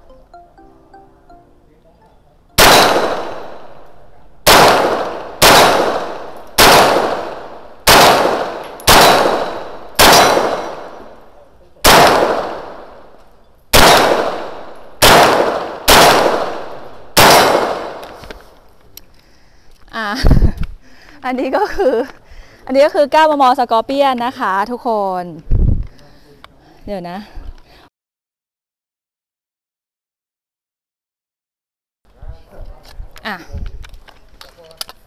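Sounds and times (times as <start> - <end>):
gunshots with ringing tail: 2.6 - 11.2, 11.8 - 13.1, 13.7 - 18.1.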